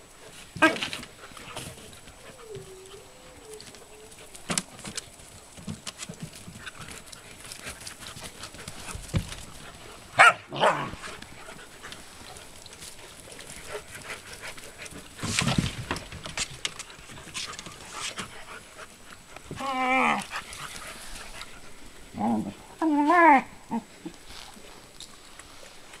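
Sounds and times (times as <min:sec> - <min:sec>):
puppies scuffling on dirt: 0:00.0 - 0:23.4
sharp puppy barks: 0:10.2 - 0:10.9.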